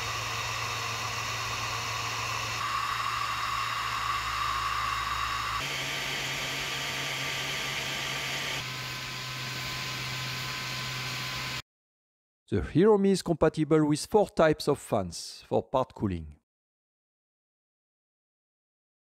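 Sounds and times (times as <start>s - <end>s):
blower fan air rush with whine: 0.0s - 11.6s.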